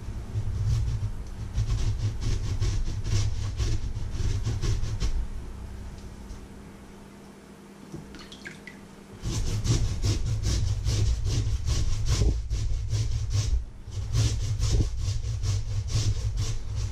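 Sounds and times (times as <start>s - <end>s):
potato rasping on metal grater: 0.4s - 5.1s, 9.2s - 16.9s.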